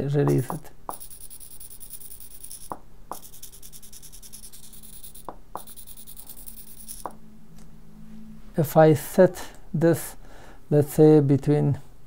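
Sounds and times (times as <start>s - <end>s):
servo motor buzzy ticking: 0.3s - 7.2s.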